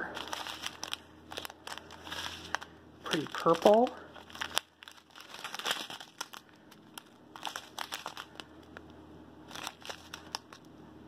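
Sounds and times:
plastic bags crinkling: 0.0 - 8.8, 9.5 - 10.7.

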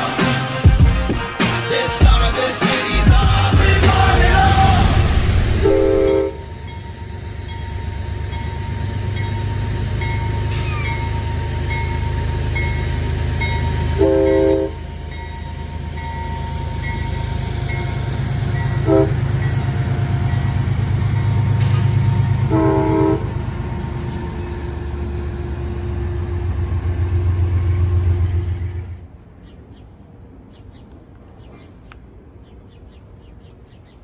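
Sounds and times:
diesel locomotive passing: 0.0 - 33.6
train horn blasts: 5.5 - 6.9, 10.0 - 23.6.

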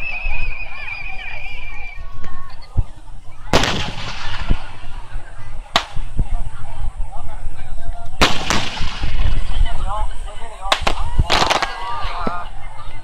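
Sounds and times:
firework shells bursting: 3.5 - 5.0, 5.7 - 6.2, 8.2 - 9.5, 10.7 - 11.8.

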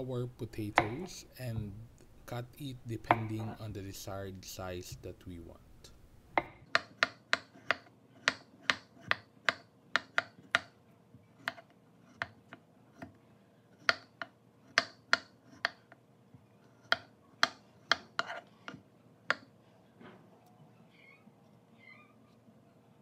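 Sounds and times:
knife chopping on wooden board: 0.8 - 1.1, 3.0 - 3.6, 6.4 - 10.7, 11.4 - 13.1, 13.8 - 15.8, 16.8 - 18.4.

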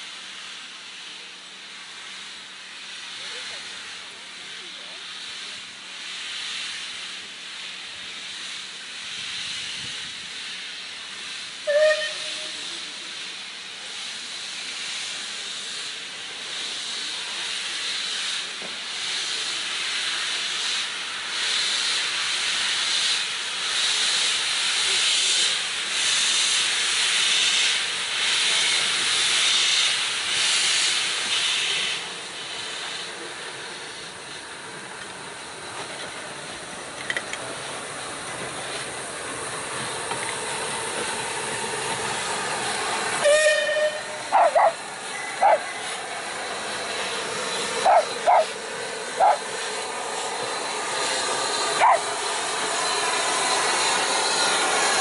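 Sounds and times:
steam locomotive hissing: 0.0 - 55.0
steam whistle toot: 11.6 - 12.7, 43.2 - 44.7.

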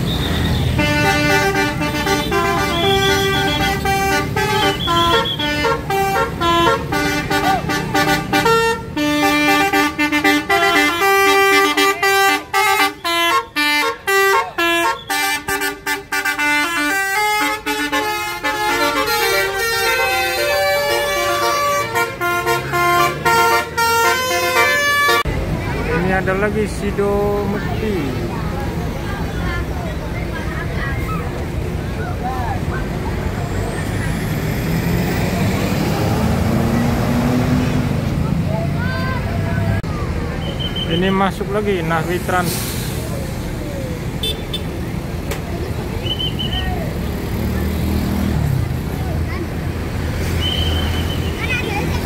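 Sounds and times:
musical air horns playing tunes: 0.2 - 25.3.

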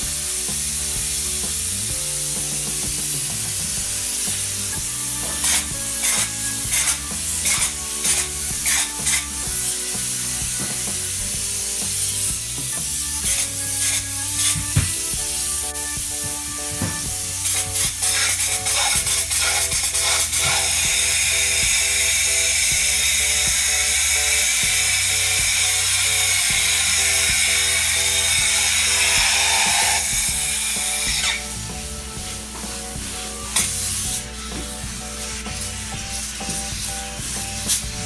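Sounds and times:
background music: 0.0 - 38.0
spray foam gun hissing: 0.0 - 38.0.

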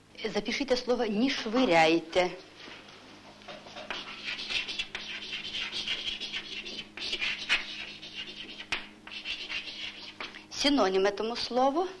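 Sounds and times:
chalk scratching on blackboard: 3.6 - 10.4.

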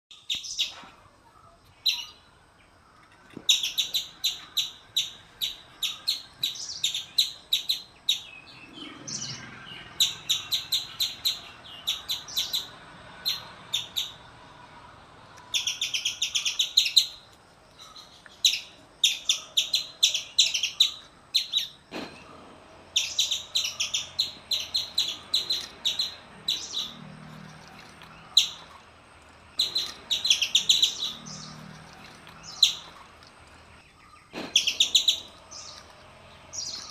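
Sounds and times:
high bird-like chirps: 15.4 - 21.9, 22.9 - 27.1, 29.6 - 33.2, 33.9 - 36.9.

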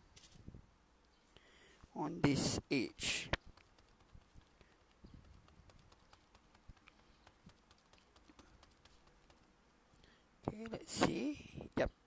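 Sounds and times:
sponge dabbing soft taps: 3.4 - 9.6.

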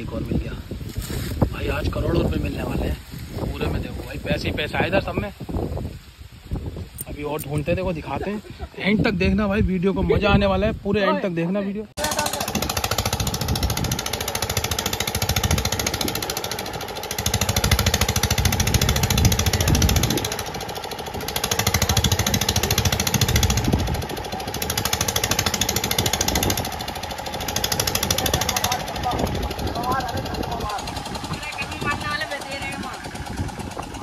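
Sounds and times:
diesel water pump engine running: 12.0 - 34.0.

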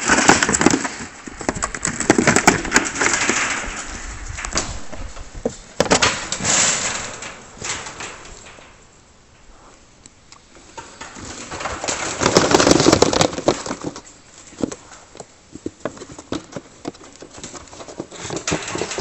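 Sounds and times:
clicks and rustling: 0.0 - 19.0.

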